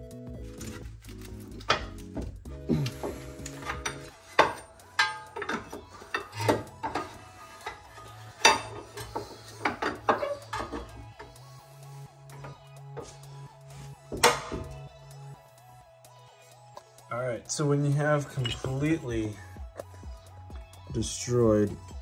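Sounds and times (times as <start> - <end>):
metal bar clanking and knocking: 1.6 - 2.3, 3.0 - 11.4, 14.1 - 14.9, 18.3 - 18.9.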